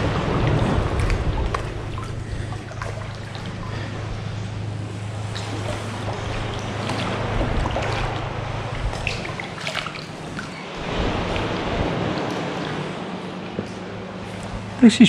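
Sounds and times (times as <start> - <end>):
small splashes: 0.0 - 14.7
paddles dipping and dripping: 0.0 - 14.8
water lapping around kayak: 0.0 - 14.9
steady low rumble: 0.0 - 15.0.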